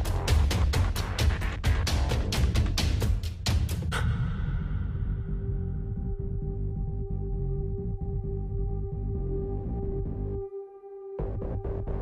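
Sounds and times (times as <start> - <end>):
electronic music with fast beat: 0.0 - 4.3, 11.2 - 12.0
heavy bass: 0.0 - 10.4, 11.2 - 12.0.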